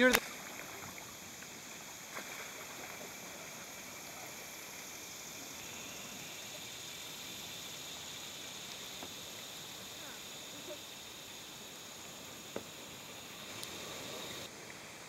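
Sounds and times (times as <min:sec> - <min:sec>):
flowing river water: 0:00.0 - 0:15.0
insects droning: 0:00.0 - 0:15.0
faint clicks: 0:13.5 - 0:13.8.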